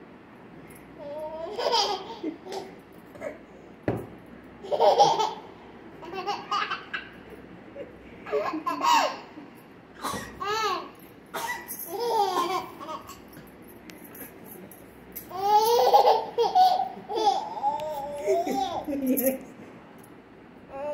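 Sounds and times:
toddler giggling: 1.0s - 3.4s, 4.6s - 7.2s, 7.8s - 10.9s, 11.8s - 13.3s, 15.3s - 19.3s.

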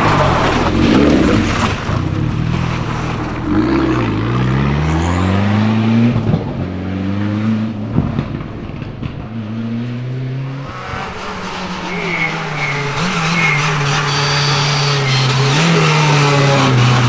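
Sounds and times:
rally car engine at high revs: 0.0s - 17.0s.

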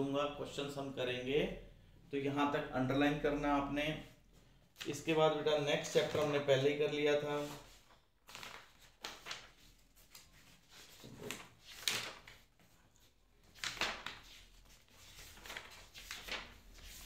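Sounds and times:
book pages rustling: 7.4s - 17.0s.

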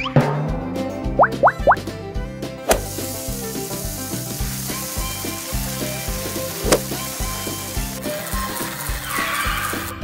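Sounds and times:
background music with steady beat: 0.0s - 9.4s
steak sizzling on a grill: 2.6s - 10.0s.

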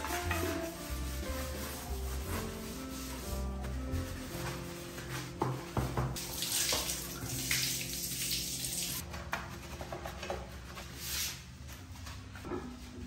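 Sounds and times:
sponge scrubbing toilet: 0.0s - 7.5s.

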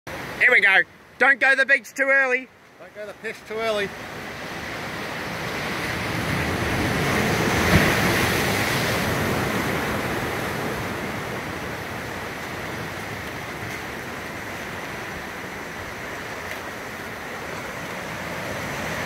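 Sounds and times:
sea surf washing against rocks: 0.1s - 19.0s
wave knocking: 4.5s - 19.0s.

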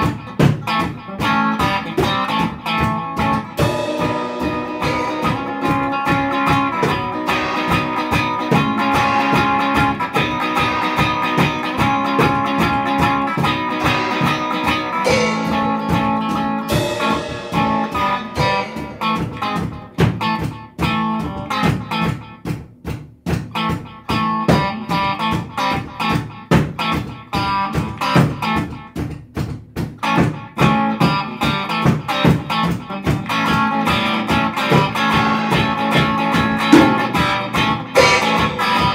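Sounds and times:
electric guitars playing chords: 0.0s - 22.0s, 33.2s - 38.9s
psychedelic rock instrumental: 0.0s - 29.1s, 29.8s - 38.9s.

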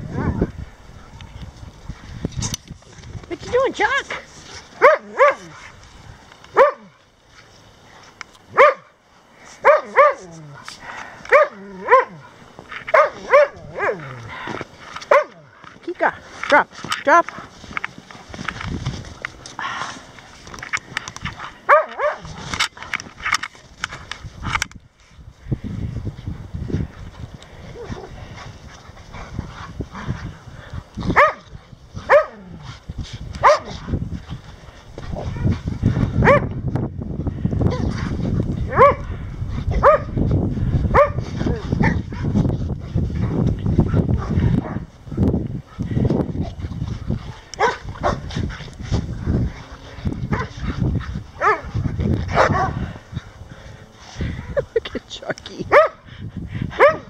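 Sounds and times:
dogs growling and barking: 4.1s - 5.8s, 9.6s - 15.8s, 27.6s - 36.6s, 37.6s - 54.8s, 55.7s - 57.0s
dog barking: 4.8s - 5.6s, 6.6s - 6.9s, 8.6s - 8.9s, 9.6s - 10.3s, 11.3s - 12.2s, 12.9s - 14.0s, 15.1s - 15.4s, 21.7s - 22.2s, 31.2s - 31.4s, 32.1s - 32.4s, 33.4s - 33.7s, 36.2s - 36.5s, 38.7s - 39.0s, 39.8s - 40.1s, 41.0s - 41.2s, 52.3s - 52.8s, 55.7s - 56.0s, 56.8s - 57.0s
dogs romping: 12.3s - 24.8s.

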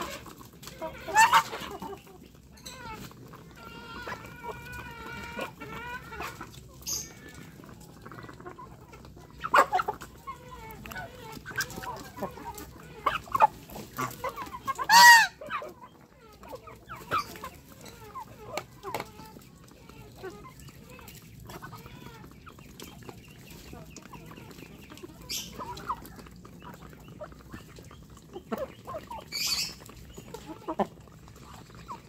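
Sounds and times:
chickens clucking: 0.0s - 32.0s
loud chicken call: 14.7s - 15.6s.

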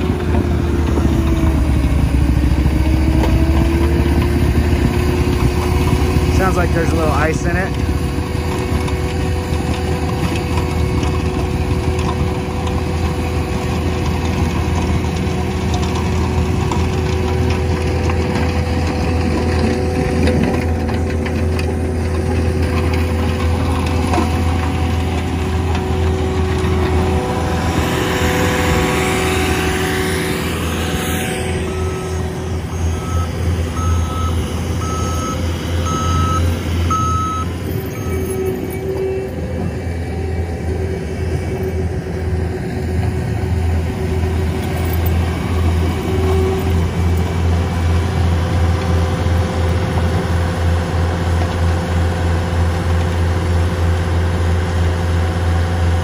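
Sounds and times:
skid-steer engine running: 0.0s - 56.0s
snow blower churning snow: 0.0s - 56.0s
backup alarm beeps: 31.6s - 38.5s.

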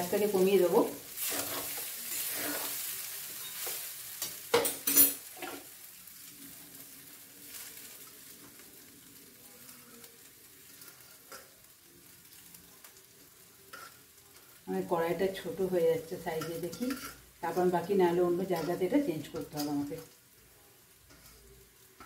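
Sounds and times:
faint frying hiss: 0.0s - 22.0s
spatula scraping metal pan: 1.2s - 2.8s, 13.7s - 14.0s, 16.2s - 17.7s, 18.4s - 20.0s, 21.0s - 21.6s.

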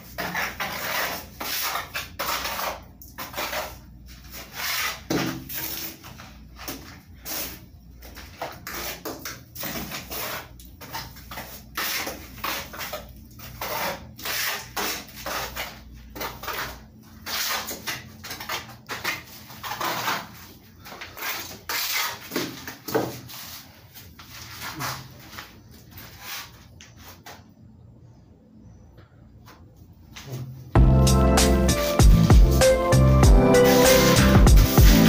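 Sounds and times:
trowel scraping wet plaster: 0.0s - 6.2s, 8.5s - 23.6s.

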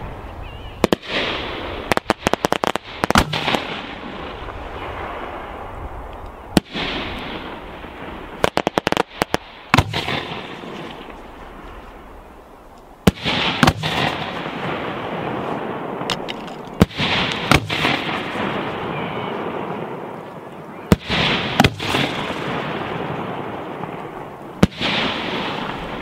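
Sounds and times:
firework shells bursting: 0.8s - 4.1s, 13.1s - 14.6s, 20.9s - 22.8s
crackling firework pops: 0.8s - 4.6s, 8.4s - 11.3s, 13.1s - 14.4s, 16.0s - 18.4s, 20.9s - 22.6s.

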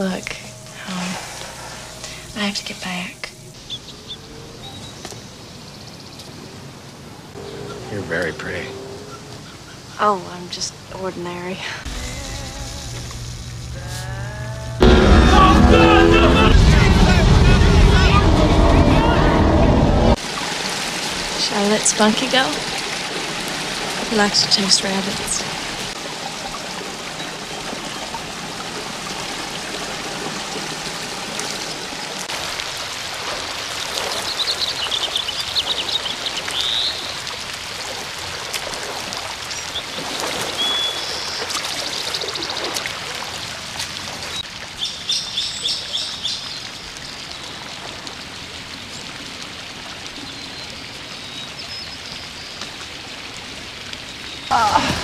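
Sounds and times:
birds chirping in trills: 0.0s - 10.8s, 39.5s - 42.8s
flowing water rushing: 0.0s - 18.0s, 19.8s - 55.0s.

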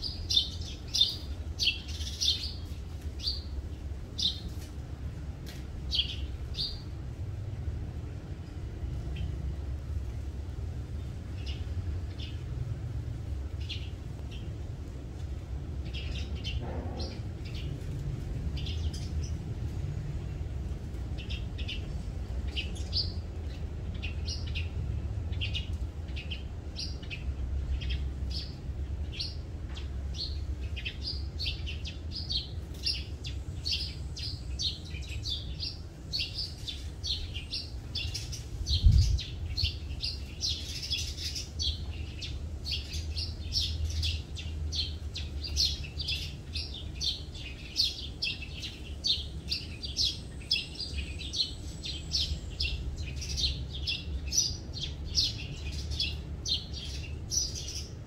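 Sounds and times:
birds chirping: 0.0s - 5.2s, 5.8s - 7.2s, 10.6s - 58.0s
steady low rumble: 4.8s - 45.8s.

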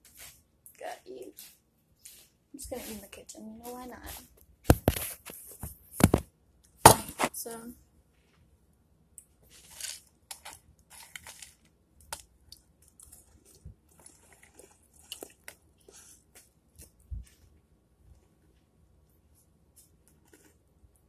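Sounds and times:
chewing crunchy cereal: 9.5s - 17.4s, 19.8s - 21.0s.

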